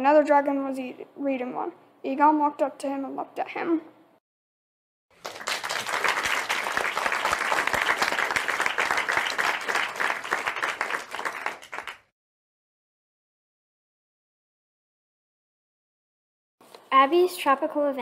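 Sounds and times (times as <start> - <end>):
applause: 5.1 - 12.1.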